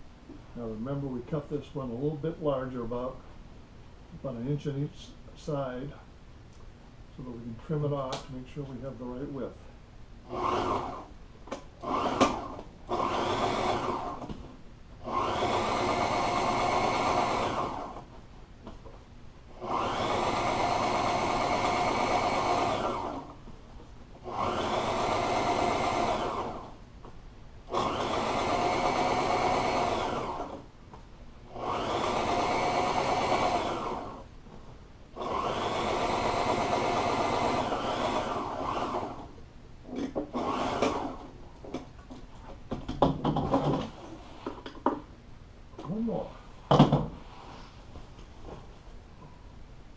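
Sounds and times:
sewing machine stitching: 10.3 - 11.1, 11.8 - 14.3, 15.0 - 18.0, 19.6 - 23.3, 24.2 - 26.7, 27.7 - 30.6, 31.5 - 34.2, 35.2 - 39.3, 39.9 - 41.3.

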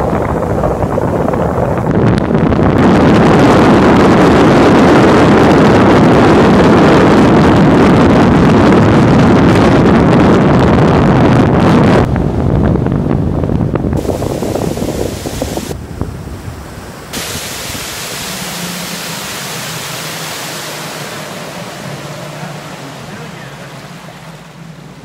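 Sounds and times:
rushing water: 0.0 - 8.0, 14.0 - 25.0
wind buffeting microphone: 0.0 - 25.0
outboard motor running: 13.0 - 25.0.

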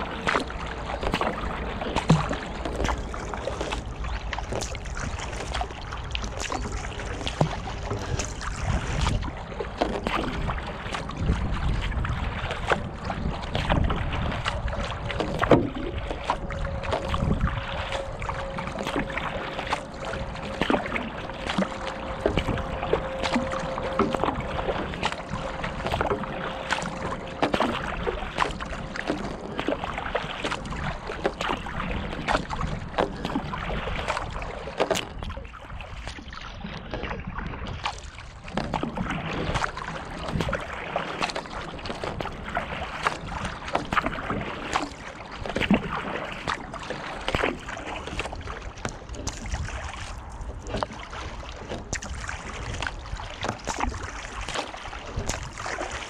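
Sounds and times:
water splashing along a kayak: 0.0 - 56.0
water drips: 14.3 - 31.6.

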